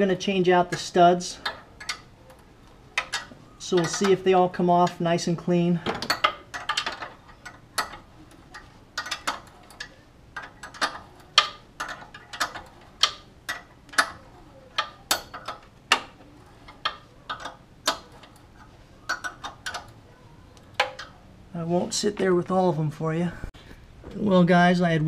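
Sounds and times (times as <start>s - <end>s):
hand wrench clicking: 0.7s - 4.2s, 5.9s - 20.0s.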